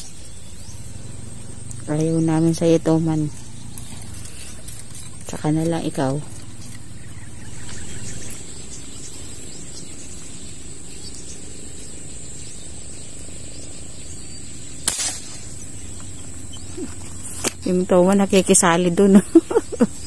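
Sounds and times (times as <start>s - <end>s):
high insect whine: 0.0s - 20.0s
airgun shot: 14.8s - 15.6s.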